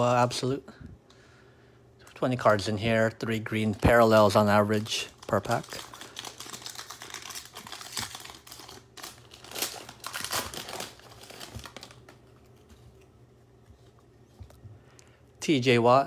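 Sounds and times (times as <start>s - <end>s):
wrapper crinkling and tearing: 3.7s - 12.7s.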